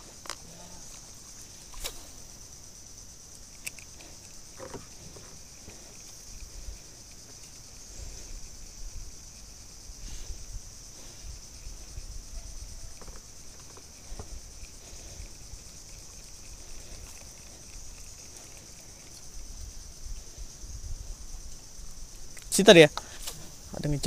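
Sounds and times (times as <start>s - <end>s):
high-pitched insect drone: 0.0s - 24.0s
faint ticks: 3.2s - 9.5s, 11.6s - 20.5s.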